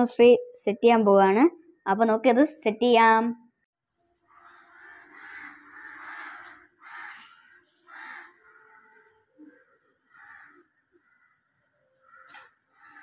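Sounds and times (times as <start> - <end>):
crows cawing: 4.3 - 13.0.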